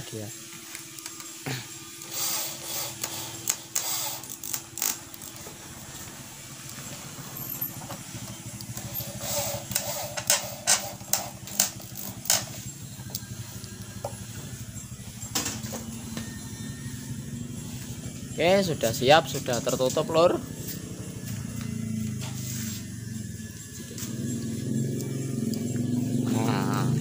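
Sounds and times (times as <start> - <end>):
cordless drill whirring: 2.0 - 6.1.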